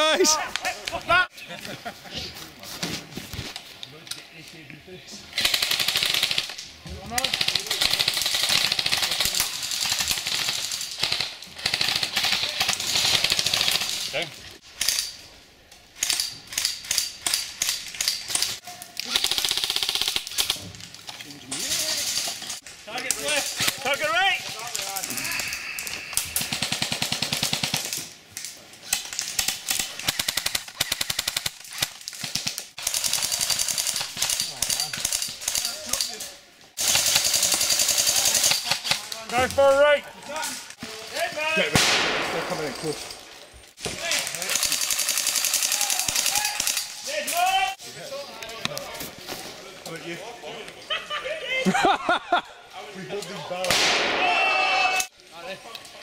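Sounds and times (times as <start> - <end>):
airsoft guns automatic fire: 5.4 - 6.6, 7.2 - 14.0, 19.1 - 20.6, 26.3 - 27.9, 29.3 - 36.0, 36.8 - 39.0, 44.1 - 46.9.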